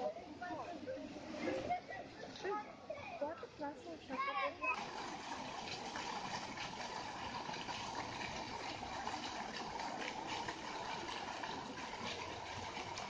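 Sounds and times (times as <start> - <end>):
fountain water splashing: 4.6 - 13.0.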